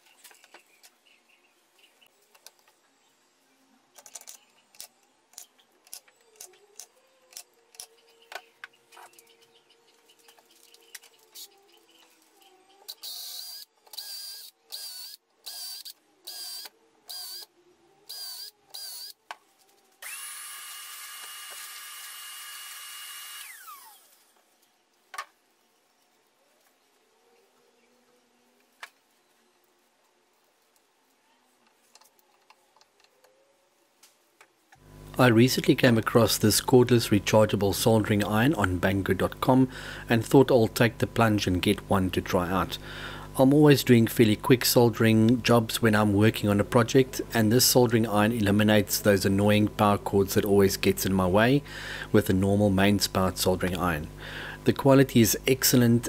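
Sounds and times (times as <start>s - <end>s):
cordless drill whining: 20.0s - 24.2s.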